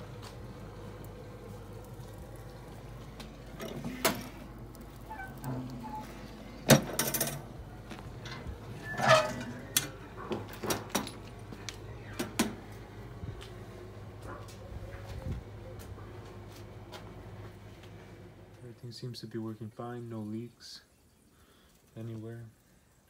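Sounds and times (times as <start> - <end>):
rattling creaking clatter: 3.5 - 11.3
metal lid clanking: 8.2 - 10.0.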